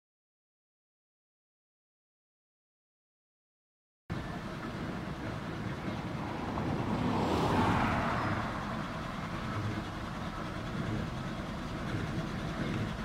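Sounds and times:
car passing by: 4.2s - 11.2s.

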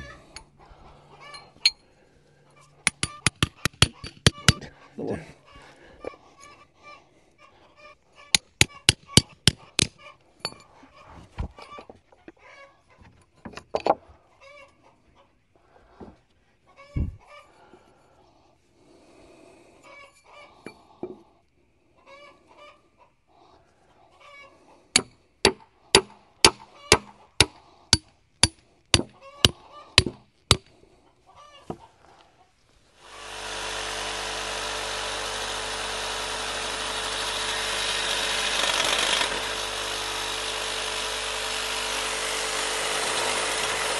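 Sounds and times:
chickens clucking: 0.0s - 1.7s, 2.5s - 13.3s, 14.0s - 17.9s, 19.8s - 24.9s, 29.1s - 30.0s, 31.0s - 32.6s
poultry calling: 0.0s - 2.8s, 14.1s - 16.0s, 16.6s - 17.9s, 21.8s - 24.8s, 29.1s - 30.0s
hammer striking wooden stake: 2.8s - 4.7s, 8.3s - 10.6s, 25.0s - 30.7s.

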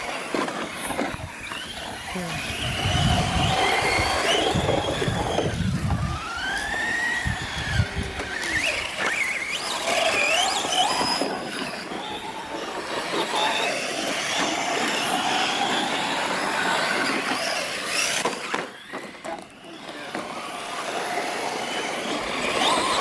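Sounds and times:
radio-controlled truck motors whining: 0.0s - 23.0s.

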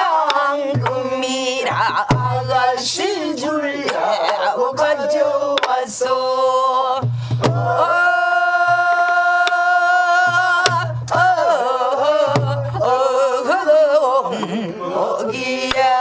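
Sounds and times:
woman singing with vibrato: 0.0s - 16.0s
low drum thumps: 1.8s - 2.6s, 7.0s - 8.0s, 12.1s - 12.9s
drum stick clicks: 5.6s - 5.8s, 9.4s - 9.6s, 15.6s - 15.9s.

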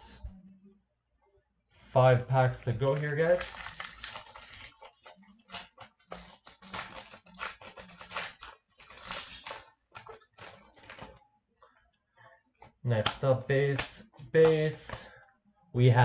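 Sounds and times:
foil wrapper crinkling and tearing: 2.4s - 11.2s.

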